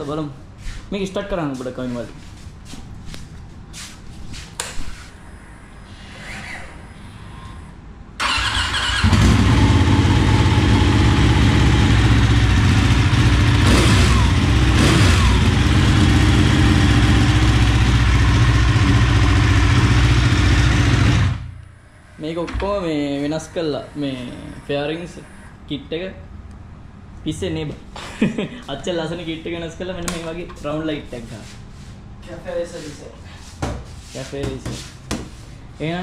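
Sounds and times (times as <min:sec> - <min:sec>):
motorcycle engine running: 0:08.5 - 0:21.6.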